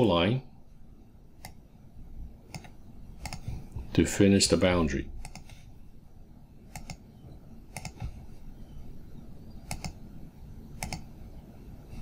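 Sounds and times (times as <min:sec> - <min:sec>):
low background hum: 0:00.0 - 0:12.0
computer mouse clicking: 0:01.4 - 0:01.6, 0:02.5 - 0:03.7, 0:05.2 - 0:05.6, 0:06.7 - 0:07.1, 0:07.7 - 0:08.2, 0:09.6 - 0:10.0, 0:10.8 - 0:11.1.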